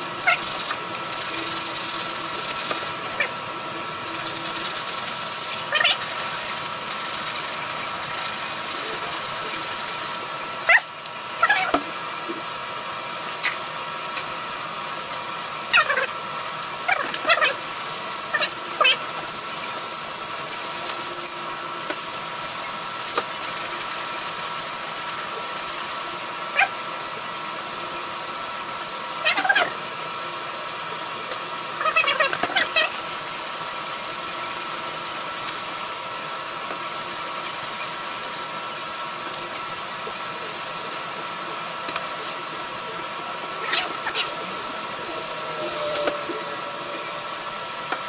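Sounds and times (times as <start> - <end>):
sandpaper rubbing on metal: 0.0 - 11.7, 16.8 - 29.7, 31.8 - 36.1, 36.8 - 48.0
faint whine: 39.3 - 48.0.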